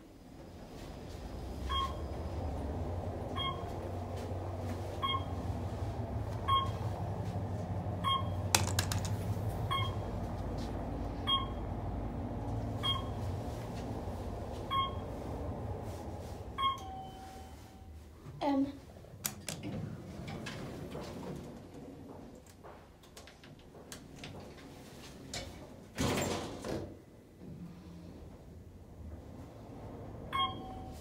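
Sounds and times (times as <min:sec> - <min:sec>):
elevator ride hum: 0:00.0 - 0:31.0
elevator beep: 0:01.6 - 0:02.4, 0:03.3 - 0:03.9, 0:04.9 - 0:05.7, 0:06.4 - 0:07.0, 0:08.0 - 0:08.5, 0:09.7 - 0:10.2, 0:11.2 - 0:11.7, 0:12.8 - 0:13.3, 0:14.7 - 0:15.2, 0:16.6 - 0:18.0, 0:30.3 - 0:31.0.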